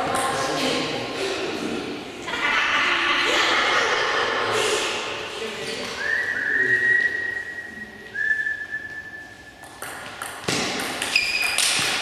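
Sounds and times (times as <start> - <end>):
high steady whistle: 6.0 - 9.6.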